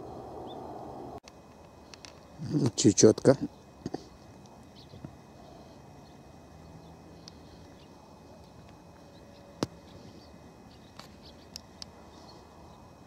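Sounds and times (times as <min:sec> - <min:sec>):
soft high bird calls: 0:00.0 - 0:01.2
faint outdoor ambience: 0:00.0 - 0:13.0.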